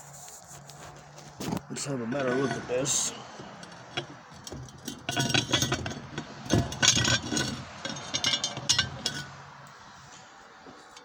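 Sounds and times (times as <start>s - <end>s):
metal tubing clinking: 1.4s - 11.0s.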